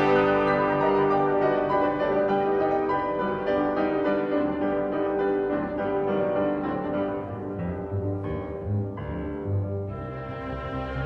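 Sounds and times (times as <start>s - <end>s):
classical music with held notes: 0.0s - 11.0s.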